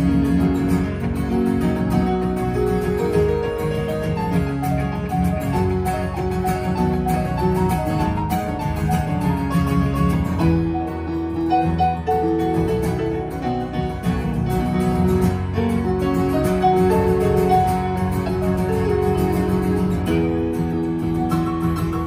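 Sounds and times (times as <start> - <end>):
keyboard piano sound: 0.0 - 22.0
strummed acoustic guitar: 0.0 - 22.0.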